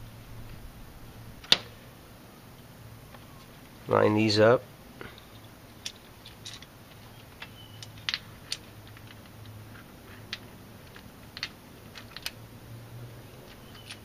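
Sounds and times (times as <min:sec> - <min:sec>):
metal parts clicking and tapping: 0:05.0 - 0:12.4, 0:13.4 - 0:14.0.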